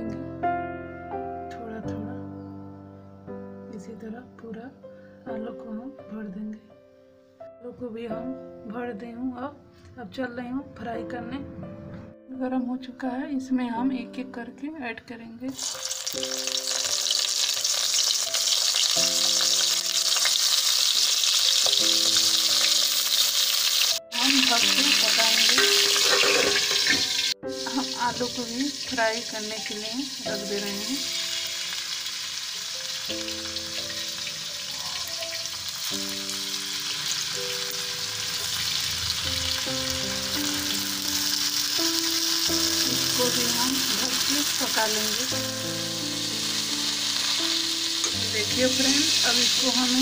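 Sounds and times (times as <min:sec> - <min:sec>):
soft background music: 0:00.0 - 0:50.0
vegetables sizzling in hot oil: 0:15.5 - 0:50.0.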